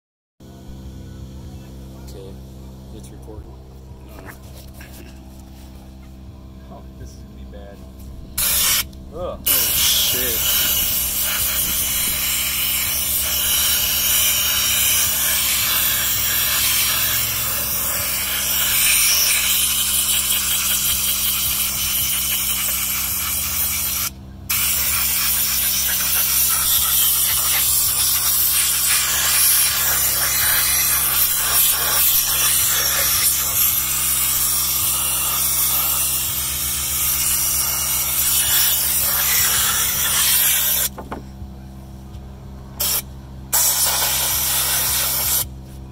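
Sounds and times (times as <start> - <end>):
steady low hum: 0.4 - 45.9
air blow gun hissing: 8.4 - 41.0, 42.8 - 45.5.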